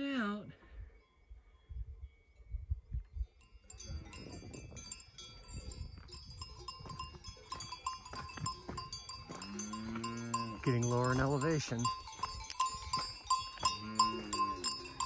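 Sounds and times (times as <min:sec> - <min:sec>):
cowbells clanking: 0:03.2 - 0:15.0
cow mooing: 0:09.3 - 0:10.7, 0:13.6 - 0:15.0.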